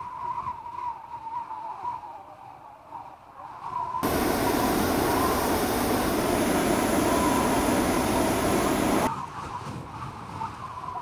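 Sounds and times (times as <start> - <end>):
propane burner blast: 4.0 - 9.1.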